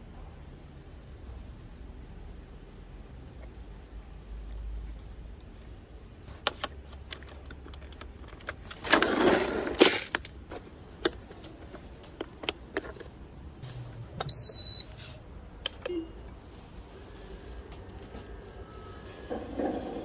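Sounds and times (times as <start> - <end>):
plastic parts clicking and rattling: 6.4 - 13.2.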